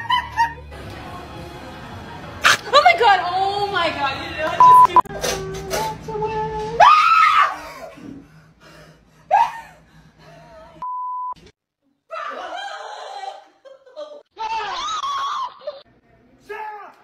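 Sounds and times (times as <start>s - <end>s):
woman screaming: 6.8s - 7.7s, 14.4s - 15.8s.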